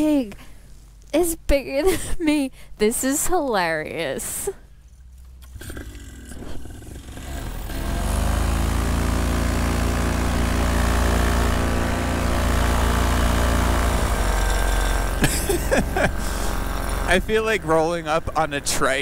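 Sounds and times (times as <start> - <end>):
paramotor engine and propeller: 5.5 - 19.0.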